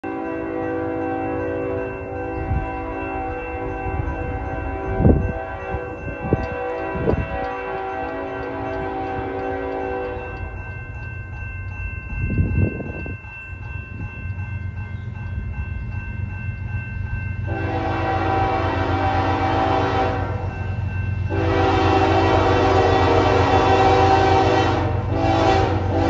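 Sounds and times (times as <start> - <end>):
locomotive horn blasts: 0.0 - 10.4, 17.5 - 20.5, 21.3 - 26.0
crossing signal bells ringing: 0.0 - 26.0
locomotive rumble: 0.4 - 26.0.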